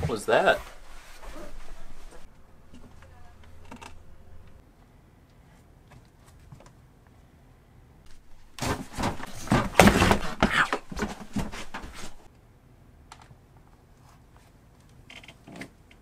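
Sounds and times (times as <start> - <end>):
thumps and knocks: 8.1 - 12.3.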